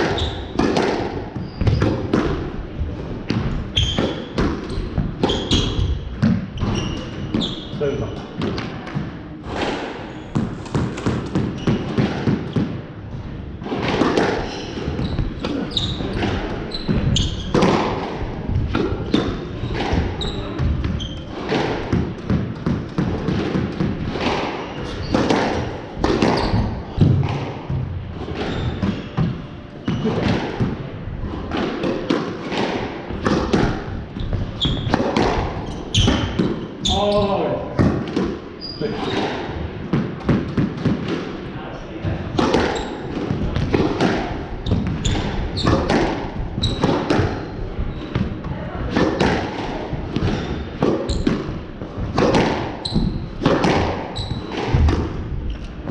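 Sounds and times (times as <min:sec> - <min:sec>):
shoes squeaking on wooden floor: 0:00.0 - 0:00.7, 0:01.3 - 0:02.2, 0:03.0 - 0:08.5, 0:09.6 - 0:12.8, 0:14.4 - 0:17.8, 0:19.0 - 0:22.1, 0:24.2 - 0:30.4, 0:34.0 - 0:37.6, 0:38.6 - 0:39.3, 0:44.5 - 0:48.4, 0:50.2 - 0:51.6, 0:52.8 - 0:54.8
squash ball hits: 0:00.0 - 0:41.4, 0:42.0 - 0:55.9.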